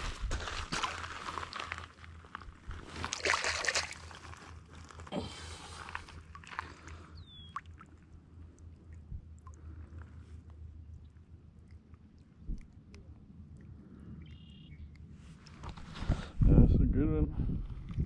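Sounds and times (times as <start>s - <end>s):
shoes scuffing on wet gravel: 0.0s - 2.0s
water sloshing and splashing: 0.0s - 14.1s.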